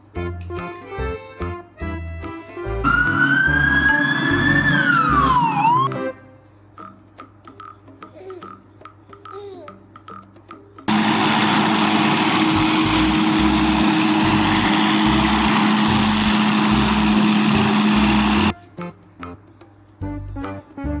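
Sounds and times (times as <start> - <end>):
helicopter hovering: 10.9 - 18.5.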